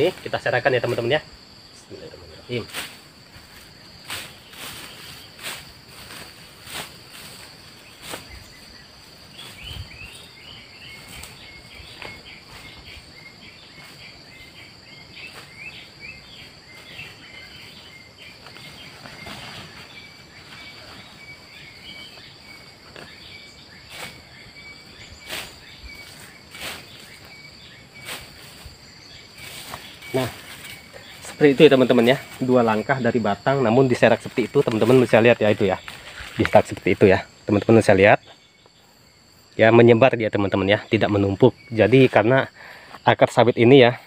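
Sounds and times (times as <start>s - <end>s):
insects droning: 0.0s - 44.0s
footsteps in dry grass: 2.7s - 33.0s, 34.0s - 37.1s.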